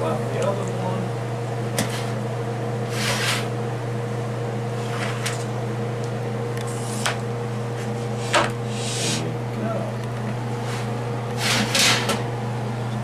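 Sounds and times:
kitchen appliance hum: 0:00.0 - 0:13.0
pizza pan scraping on oven rack: 0:02.8 - 0:03.5, 0:04.8 - 0:05.4, 0:10.6 - 0:12.2.

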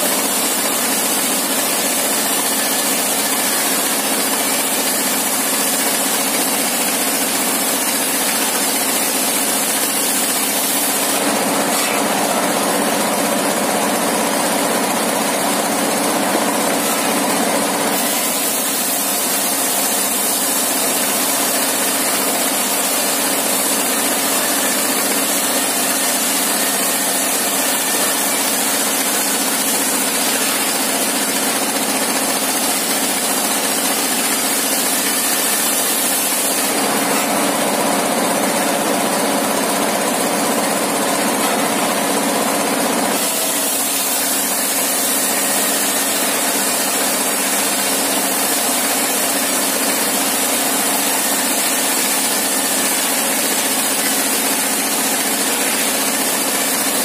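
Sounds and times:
circular saw ripping wood: 0:08.2 - 0:13.0.

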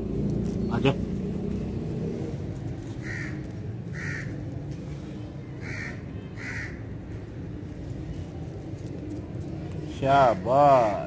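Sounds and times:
harsh crow-like bird calls: 0:02.9 - 0:04.6, 0:05.4 - 0:07.0.

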